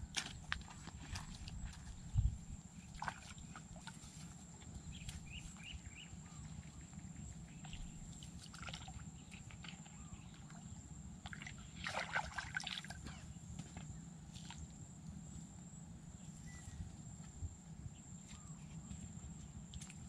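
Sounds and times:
creek water sloshing: 0:00.0 - 0:13.4
water splash: 0:11.8 - 0:13.0.

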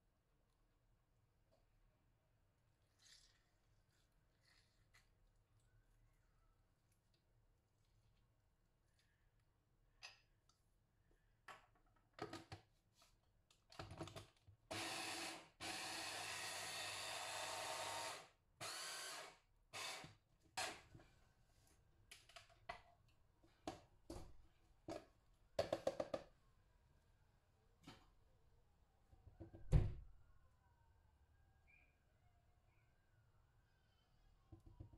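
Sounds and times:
electric blender pulsing: 0:14.7 - 0:20.0.

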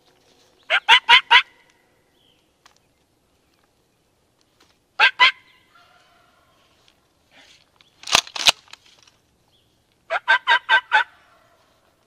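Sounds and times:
wild turkeys calling: 0:00.7 - 0:01.7, 0:05.0 - 0:06.7, 0:10.1 - 0:11.6.

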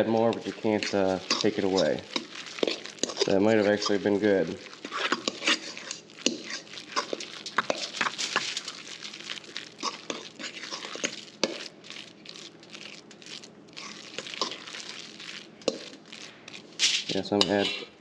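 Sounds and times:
metal utensil scraping steel bowl: 0:00.0 - 0:08.0, 0:16.8 - 0:18.0.

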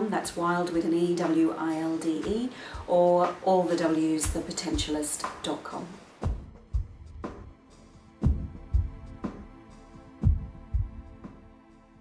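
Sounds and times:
deep drum hits: 0:08.2 - 0:09.2.

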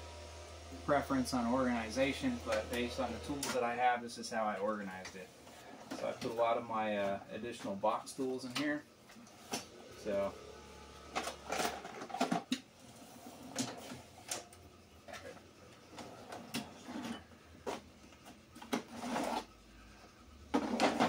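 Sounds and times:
metal toolbox drawers sliding: 0:15.1 - 0:17.8, 0:18.6 - 0:19.5, 0:20.5 - 0:21.0.

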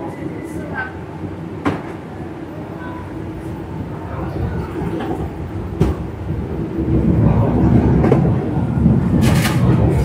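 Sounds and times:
deep rumble: 0:03.1 - 0:10.0.

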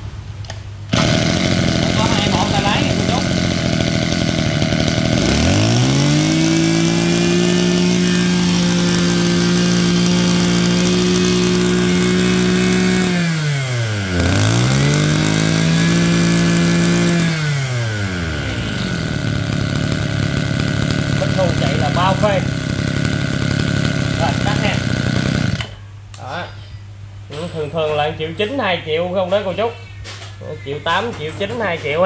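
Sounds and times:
brush cutter engine revving: 0:00.9 - 0:25.8.

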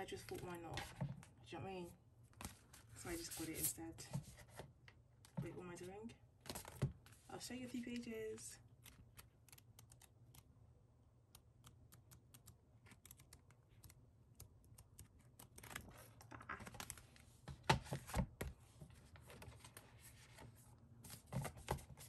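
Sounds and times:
book pages being turned: 0:02.4 - 0:04.6, 0:12.8 - 0:22.0.

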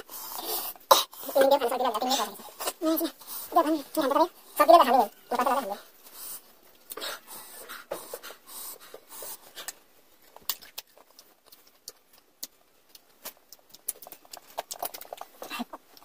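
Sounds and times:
wet chewing clicks and smacks: 0:06.6 - 0:16.0.

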